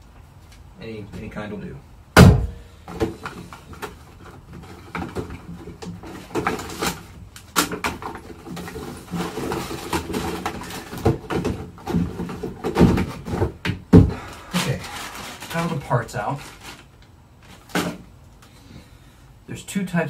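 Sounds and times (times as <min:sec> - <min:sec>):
plastic packaging crinkling: 0:14.2 - 0:18.0.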